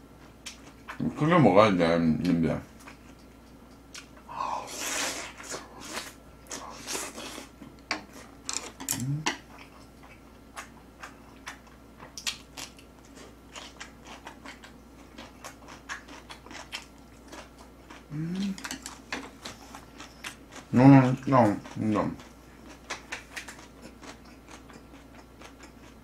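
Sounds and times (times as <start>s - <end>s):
person chewing crunchy food: 2.8s - 26.0s
person humming: 8.9s - 9.4s, 18.1s - 18.7s.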